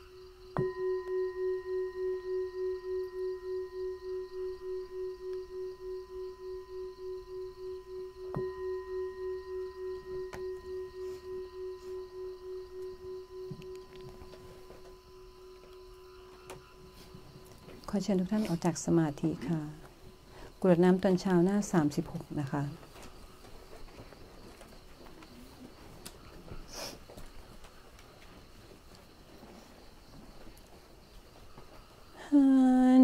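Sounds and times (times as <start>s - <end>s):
meditation bell ringing: 0.0s - 22.8s.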